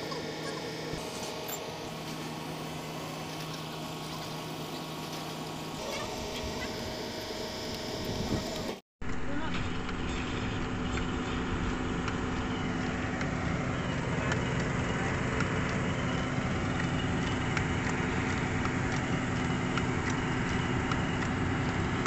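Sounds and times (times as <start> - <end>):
excavator engine idling: 0.0 - 22.0.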